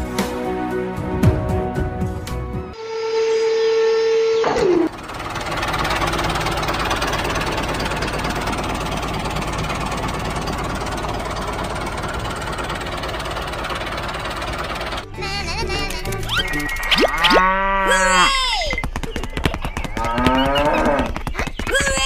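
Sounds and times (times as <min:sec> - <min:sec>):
tone sliding down in pitch: 0:02.8 - 0:04.9
tractor engine running: 0:04.5 - 0:17.1.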